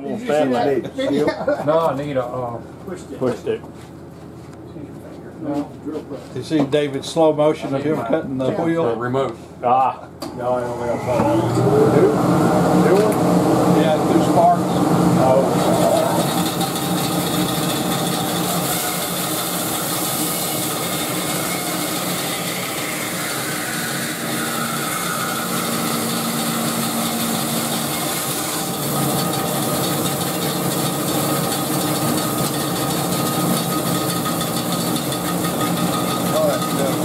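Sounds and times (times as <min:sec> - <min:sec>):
band saw cutting wood: 0:10.6 - 0:37.0.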